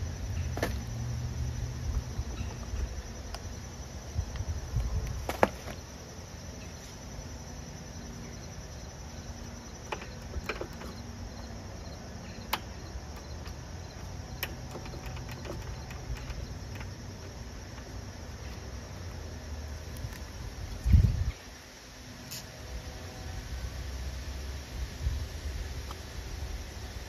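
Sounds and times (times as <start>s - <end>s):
high insect chirring: 0.0s - 21.6s
sharp light clicks of wheel parts: 9.8s - 11.2s, 12.2s - 18.7s.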